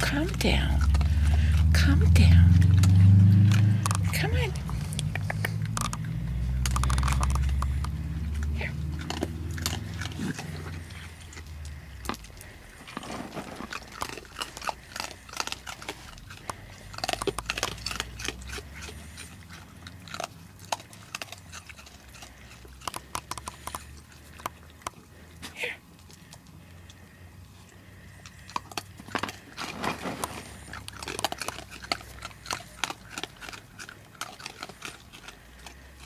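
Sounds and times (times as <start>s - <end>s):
low rumble: 0.0s - 13.3s
raccoons chewing and crunching food: 0.0s - 36.0s.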